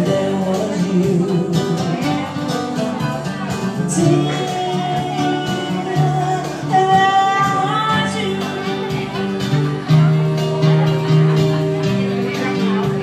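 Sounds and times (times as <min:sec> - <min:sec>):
woman singing into a microphone: 0:00.0 - 0:09.6.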